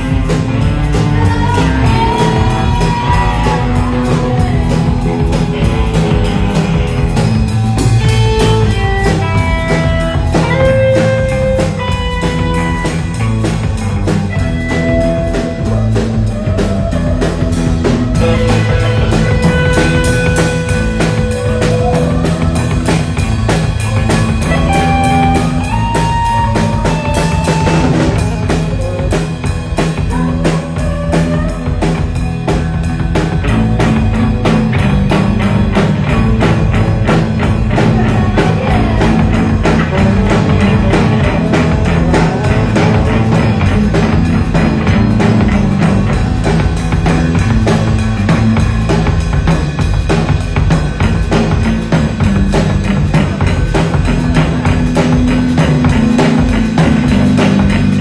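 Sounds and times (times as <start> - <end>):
saxophone: 0.0 - 49.8, 51.6 - 58.0
drum kit beat: 0.0 - 58.0
rock band jamming: 0.0 - 58.0.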